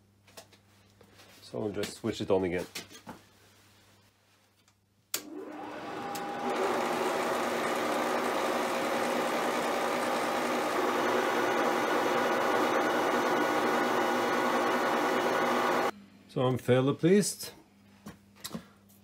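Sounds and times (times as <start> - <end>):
milling machine spindle whine: 5.3 - 15.9.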